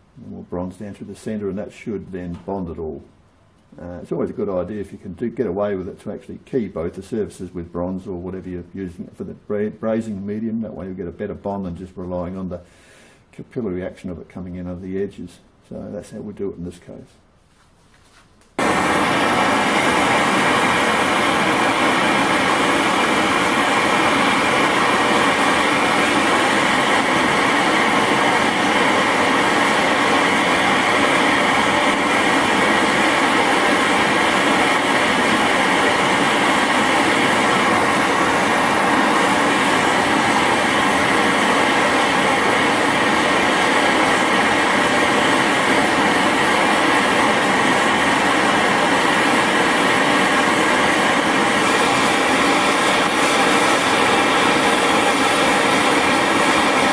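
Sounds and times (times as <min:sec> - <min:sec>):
gas torch flame hissing: 0:18.6 - 0:56.9.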